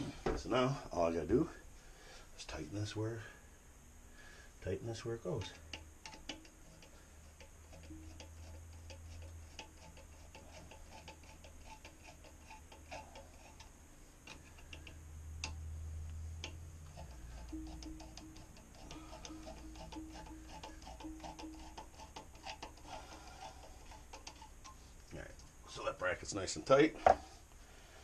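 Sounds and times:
low hum: 0.0 - 26.1
hand tool clicking: 5.4 - 15.6, 16.4 - 24.8.

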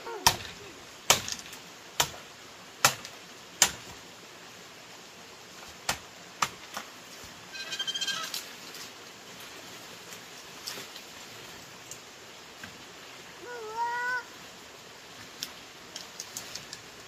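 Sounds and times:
rapidly pulsed animal call: 7.5 - 8.4.

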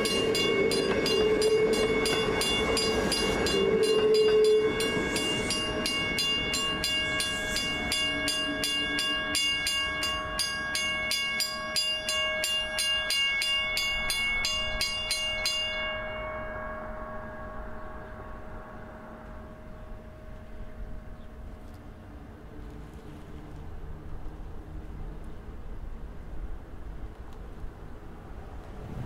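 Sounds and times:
warning bell ringing: 0.0 - 18.4
electric train rumbling past: 0.0 - 29.0.

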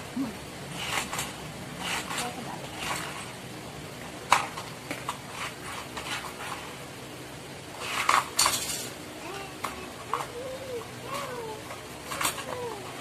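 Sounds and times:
plastic toy pieces clicking: 9.5 - 13.0.

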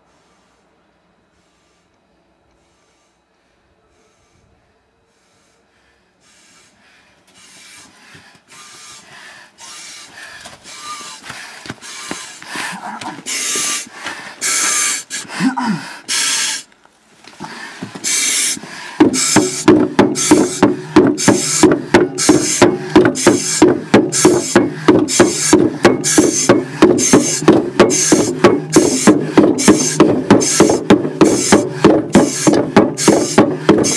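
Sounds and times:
heavy hissing breathing: 0.0 - 33.9
fast loud knocks: 19.0 - 33.9.

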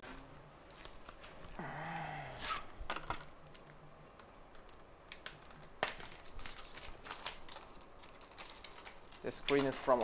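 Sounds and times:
plastic packaging crackling: 2.9 - 10.0.

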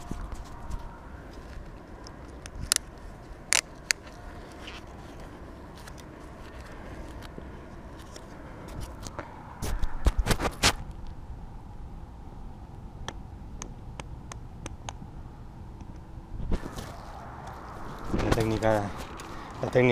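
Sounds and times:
bike tyres rumbling on dirt: 16.5 - 19.9.

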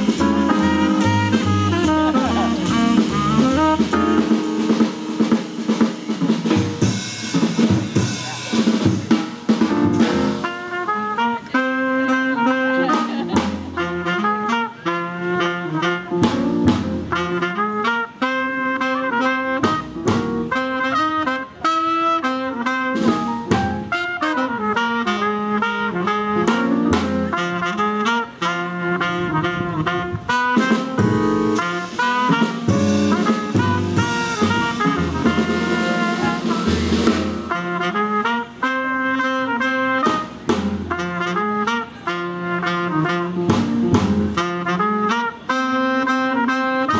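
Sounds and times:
drum kit cymbals: 0.0 - 10.8, 30.6 - 37.6
upright bass: 0.0 - 17.8, 19.6 - 21.6, 22.9 - 27.7, 28.7 - 38.0, 39.8 - 45.1
piano: 0.0 - 46.9
trumpet and saxophone melody: 0.0 - 46.9.

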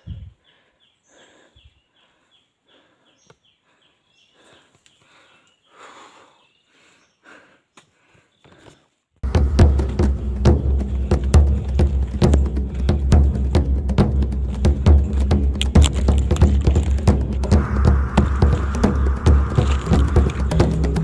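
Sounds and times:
person breathing: 0.0 - 9.0
loud music with deep drums: 9.2 - 21.0
footsteps on rocky trail: 14.4 - 17.8.

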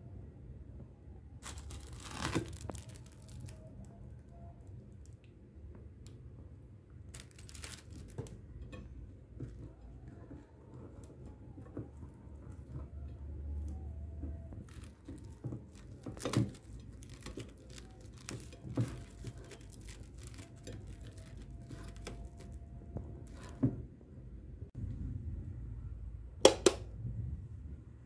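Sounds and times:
cling film crinkling: 1.4 - 4.4, 7.1 - 8.7, 14.5 - 23.7.

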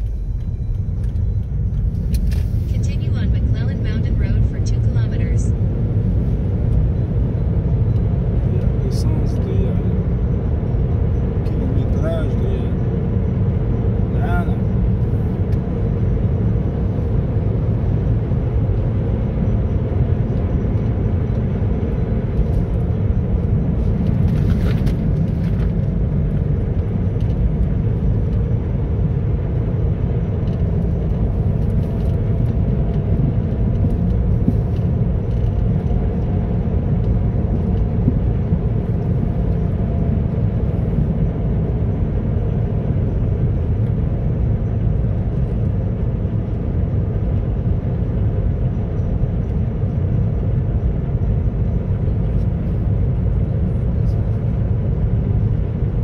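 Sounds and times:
car interior road rumble: 0.0 - 56.0.

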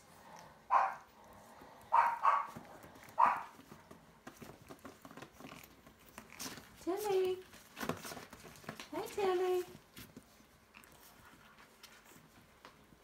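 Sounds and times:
dog barking: 0.7 - 1.1, 1.9 - 2.6, 3.2 - 3.5
faint clicks and taps: 1.2 - 13.0.

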